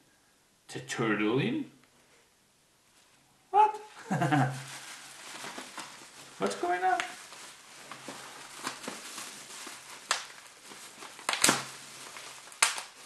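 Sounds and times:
plastic wrap rustling and crinkling: 0:03.9 - 0:13.0
sharp plastic crackles: 0:04.6 - 0:13.0.

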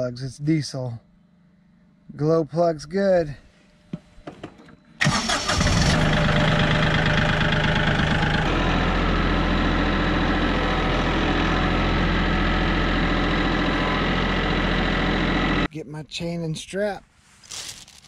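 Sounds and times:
tractor diesel engine idling: 0:05.0 - 0:15.7.

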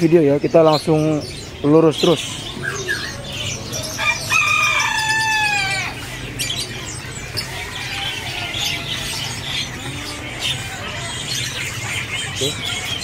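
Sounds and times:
caged birds chirping: 0:00.0 - 0:13.0
rooster crowing: 0:03.7 - 0:06.0.

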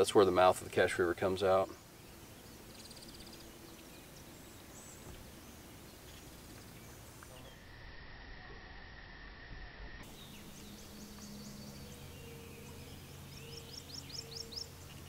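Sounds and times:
faint swamp ambience: 0:00.0 - 0:15.0
small bird chirps: 0:01.7 - 0:07.9, 0:10.0 - 0:15.0
high-pitched whine: 0:06.1 - 0:15.0
bird trill: 0:10.0 - 0:15.0.

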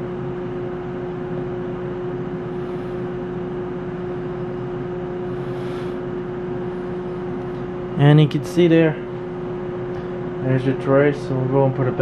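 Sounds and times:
cooling fans droning: 0:00.0 - 0:12.0.

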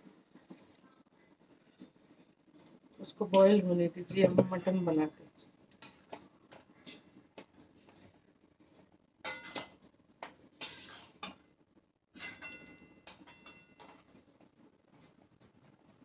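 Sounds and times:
metal utensils clinking: 0:04.3 - 0:05.1, 0:07.6 - 0:11.4, 0:12.2 - 0:14.3
metal scrape: 0:10.6 - 0:11.4.

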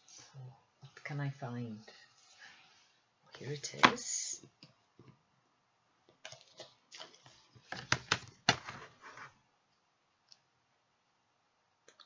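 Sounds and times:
paper rustling: 0:07.0 - 0:09.4.

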